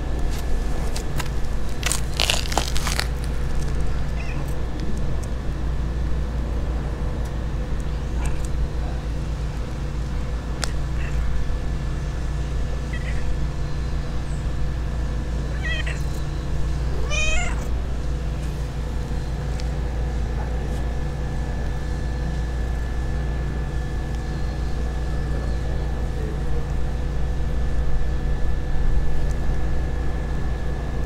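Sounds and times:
steady low hum: 0.0 - 31.0
cat meowing: 4.2 - 4.6, 15.5 - 16.1, 16.9 - 17.7.

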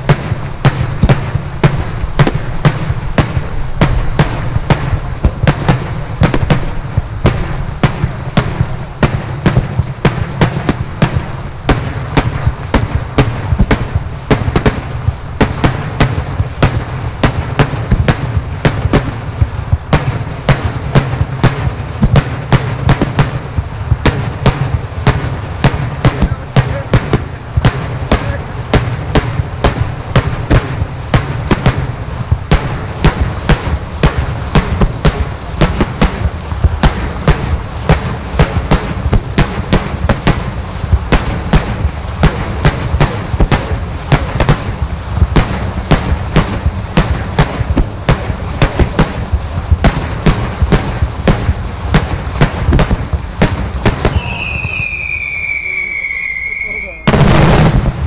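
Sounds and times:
low rumble: 0.0 - 54.8
firework bangs: 0.0 - 58.0
high firework whistle: 54.0 - 57.6.

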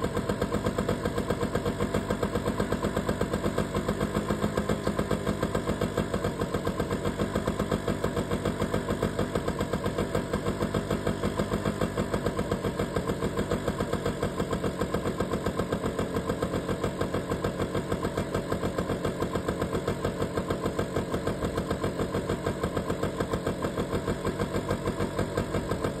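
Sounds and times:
motorcycle engine idling: 0.0 - 26.0.

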